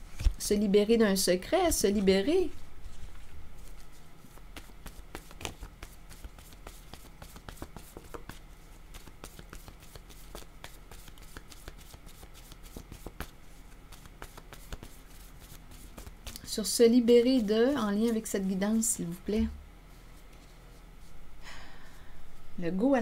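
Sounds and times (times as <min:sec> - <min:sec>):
deck of cards shuffled: 0:02.0 - 0:16.5.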